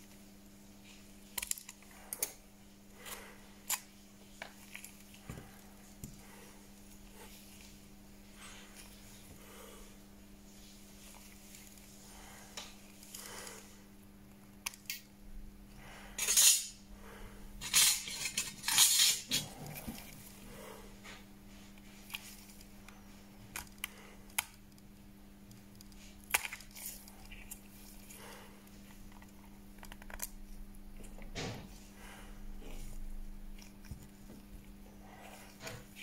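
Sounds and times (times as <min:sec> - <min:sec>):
repair tools clicking and scraping: 0:16.2 - 0:16.8, 0:17.6 - 0:20.0.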